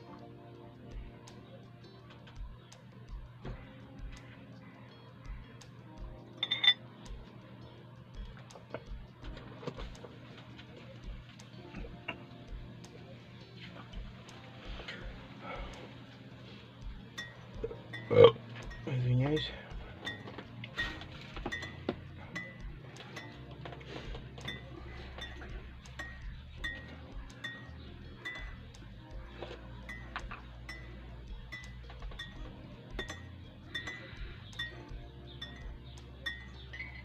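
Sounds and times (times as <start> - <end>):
spoon clinking against glass mug: 6.4 - 6.8.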